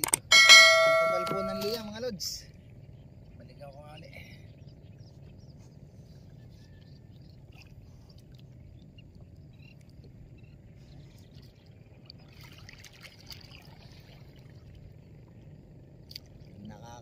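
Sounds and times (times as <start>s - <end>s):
paddle splashes and dripping: 10.9s - 16.6s.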